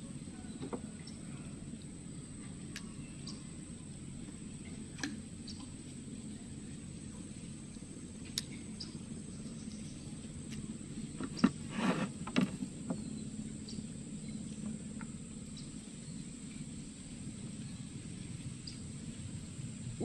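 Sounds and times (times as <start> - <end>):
outdoor background noise: 0.0 - 20.0
brief rustle: 11.2 - 12.6.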